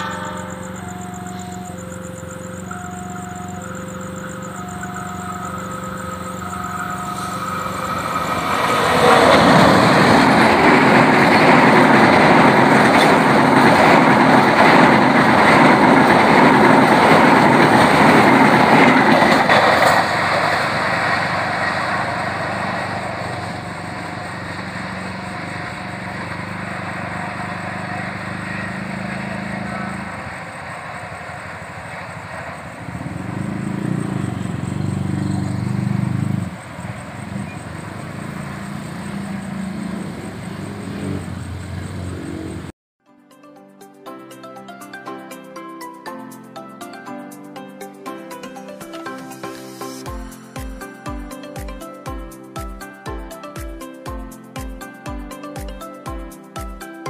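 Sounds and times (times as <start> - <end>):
level crossing alarm beeping: 0.0 - 35.6
train wheels rushing on rails: 0.0 - 42.7
diesel train drone: 0.0 - 42.8, 44.9 - 57.0.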